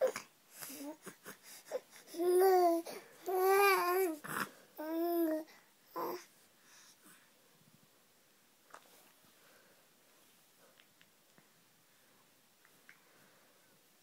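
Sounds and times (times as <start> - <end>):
baby cooing: 0.0 - 6.3
baby breathy sound: 0.0 - 7.3.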